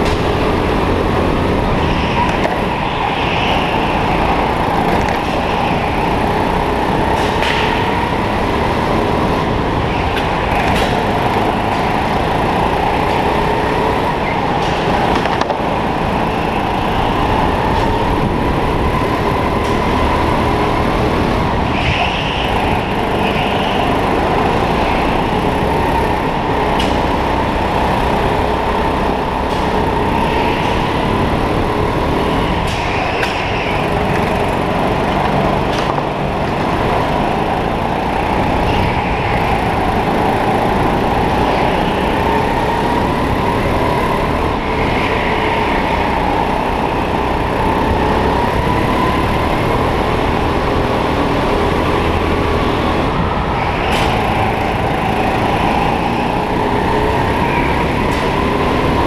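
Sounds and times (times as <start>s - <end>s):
kart motor whine: 0.0s - 59.0s.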